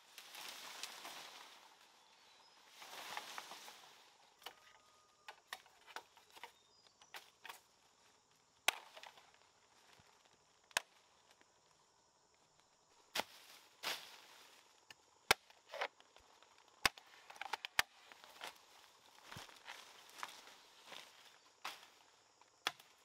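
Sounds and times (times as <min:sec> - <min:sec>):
rustle and snaps in dry leaves: 0:00.0 - 0:04.4
machete striking bamboo: 0:08.7 - 0:09.1, 0:16.8 - 0:17.9, 0:22.6 - 0:23.0.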